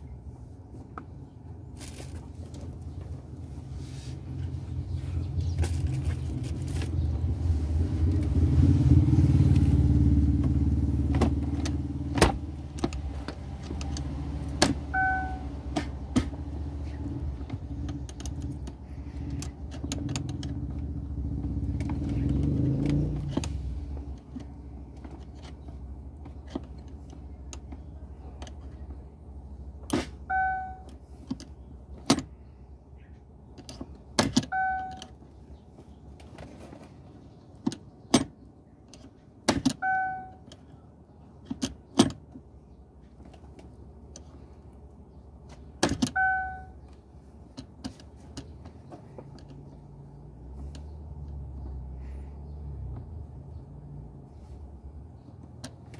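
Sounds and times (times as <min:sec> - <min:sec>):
short electronic beep: 0:14.9 - 0:15.5, 0:30.3 - 0:30.9.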